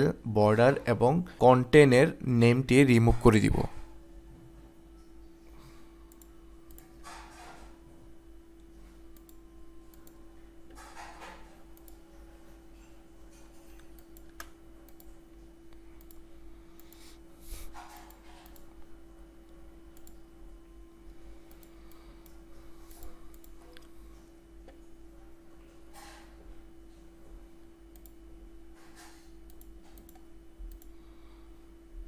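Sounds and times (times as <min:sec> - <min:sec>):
room noise: 0:00.0 - 0:32.0
steady electrical hum: 0:00.0 - 0:32.0
computer mouse clicks: 0:06.1 - 0:07.4, 0:09.2 - 0:10.2, 0:11.7 - 0:12.0, 0:13.6 - 0:17.0, 0:17.7 - 0:18.8, 0:19.9 - 0:20.2, 0:21.4 - 0:24.0, 0:27.9 - 0:28.2, 0:28.8 - 0:30.9.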